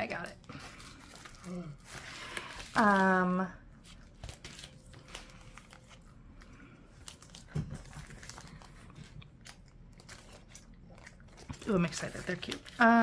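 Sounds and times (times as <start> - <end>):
plastic sleeve crinkling: 3.9 - 13.0.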